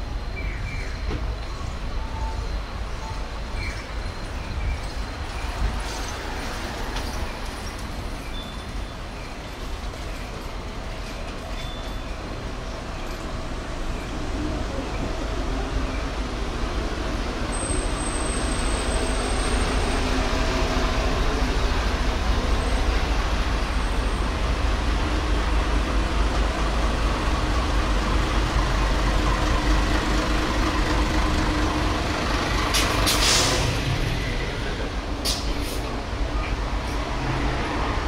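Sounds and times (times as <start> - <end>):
bus engines rumbling: 0.0 - 38.0
air brake hiss: 32.8 - 33.7.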